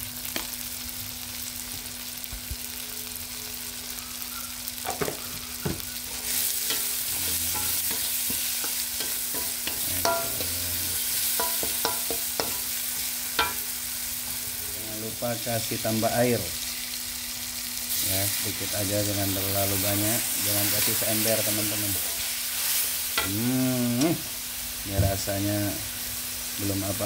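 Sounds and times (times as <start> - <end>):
vegetables sizzling in a wok: 0.0 - 27.0
metal ladle scraping pan: 6.1 - 12.7, 13.4 - 13.7.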